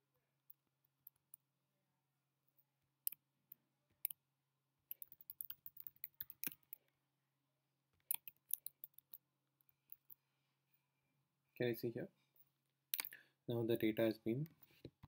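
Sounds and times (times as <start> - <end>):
faint keyboard typing: 4.9 - 7.0, 8.0 - 10.2.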